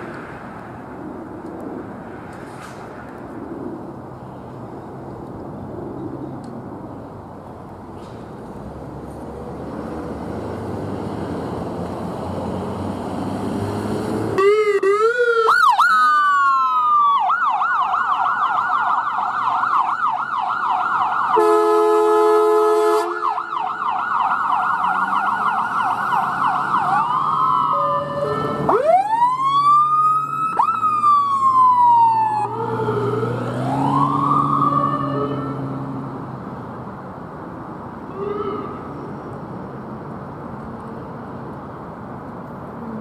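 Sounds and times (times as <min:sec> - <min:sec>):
truck engine: 0:06.6 - 0:14.4, 0:23.8 - 0:43.0
siren yelp: 0:14.4 - 0:21.6, 0:23.0 - 0:36.0, 0:38.1 - 0:39.1
siren wail: 0:14.4 - 0:21.8, 0:23.0 - 0:36.2, 0:38.0 - 0:39.2
vehicle horn blast: 0:21.4 - 0:23.2.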